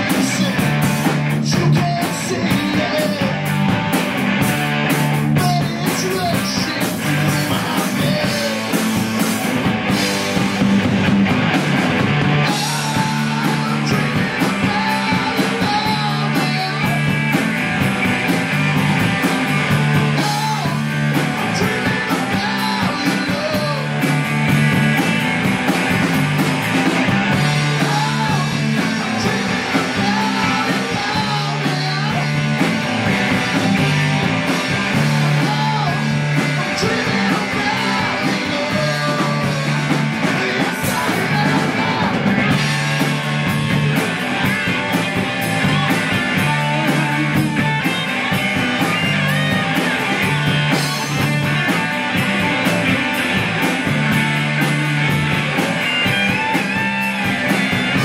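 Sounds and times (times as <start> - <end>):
man singing: 0.0 - 3.6, 5.2 - 9.0, 12.4 - 17.4, 20.0 - 24.1, 27.3 - 42.6, 45.7 - 48.0
bass guitar: 0.0 - 58.0
distorted electric guitars: 0.0 - 58.0
drum kit: 0.0 - 58.0.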